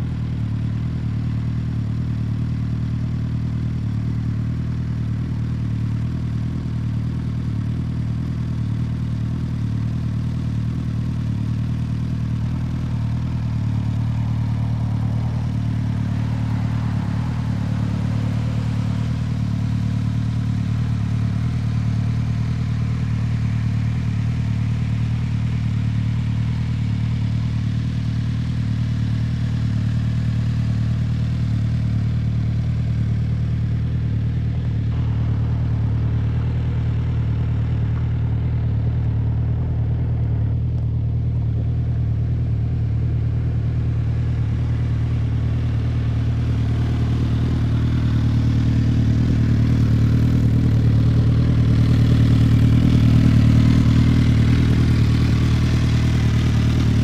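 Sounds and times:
motorcycle engine idling: 0.0s - 57.0s.

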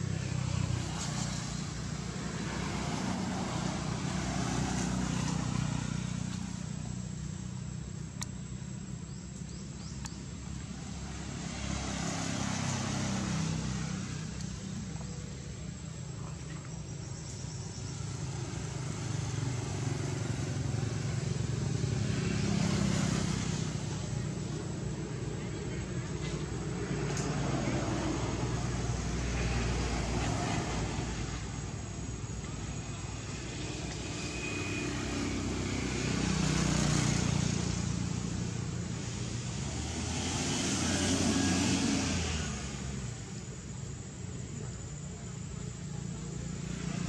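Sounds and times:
low motor rumble: 13.1s - 34.6s.

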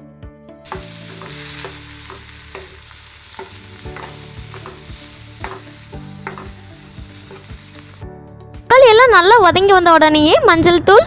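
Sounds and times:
vegetables sizzling in oil: 0.6s - 8.2s
spatula scraping a pan: 0.7s - 8.0s.

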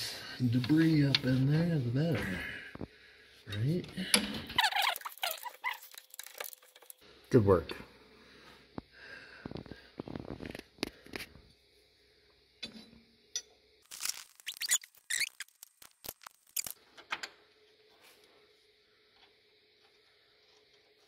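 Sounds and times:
short squeaks: 14.0s - 15.7s.

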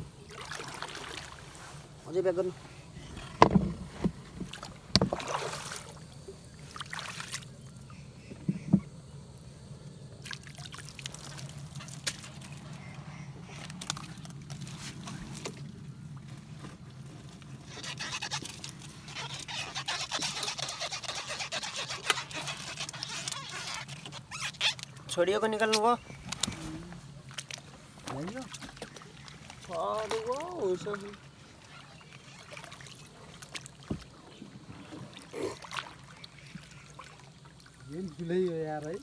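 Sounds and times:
water splashing: 0.0s - 7.8s, 10.2s - 15.8s, 17.5s - 39.0s
knocks against wooden boat: 3.3s - 5.3s.

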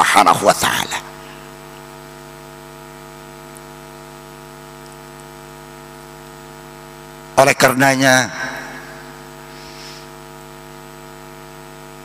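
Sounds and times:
electrical mains hum: 0.0s - 12.0s
faint hiss: 8.2s - 10.9s.

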